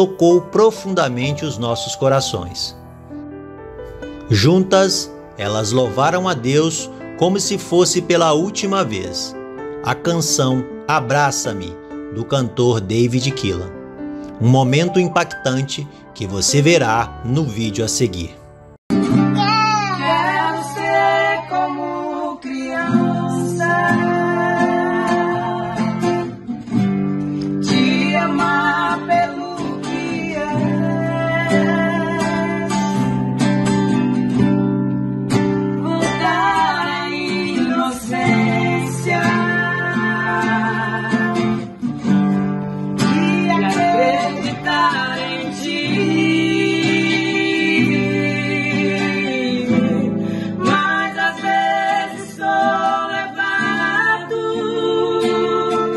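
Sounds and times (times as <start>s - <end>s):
strummed acoustic guitar: 18.9s - 22.0s, 22.6s - 55.9s
woman singing worship song: 20.0s - 26.1s, 27.5s - 33.0s, 35.8s - 41.6s, 43.0s - 55.9s.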